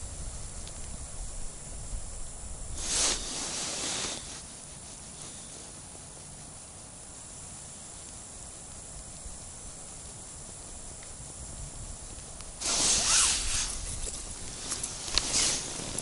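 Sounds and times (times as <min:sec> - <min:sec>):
faint outdoor hiss: 0:00.0 - 0:16.0
light rustles and clicks: 0:12.1 - 0:16.0.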